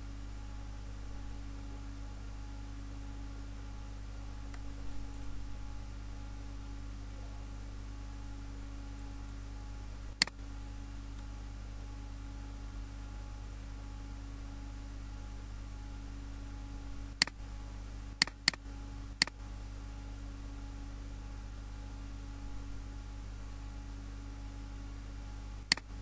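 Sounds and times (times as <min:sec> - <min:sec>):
low electrical hum: 0:00.0 - 0:26.0
computer mouse clicks: 0:18.2 - 0:18.6, 0:25.7 - 0:25.9.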